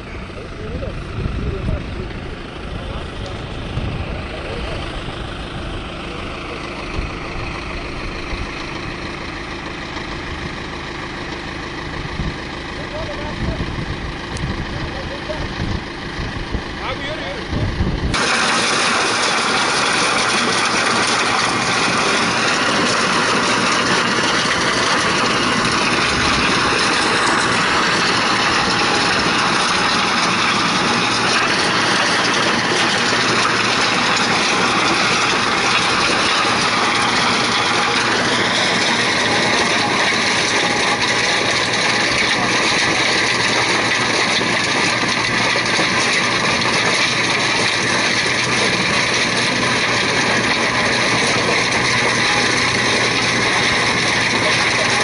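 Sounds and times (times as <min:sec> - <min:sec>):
tractor engine under load: 0:00.0 - 0:55.0
stone crusher grinding: 0:16.8 - 0:55.0.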